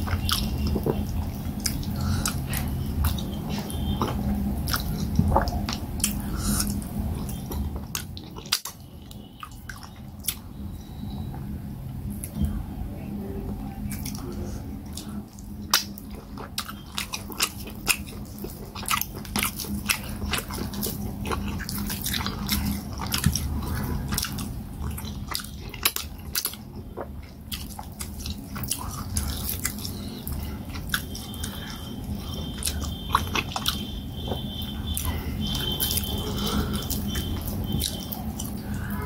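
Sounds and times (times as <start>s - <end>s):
person chewing: 0.0s - 10.9s, 13.8s - 39.0s
wet lip smacks and clicks: 14.9s - 23.5s.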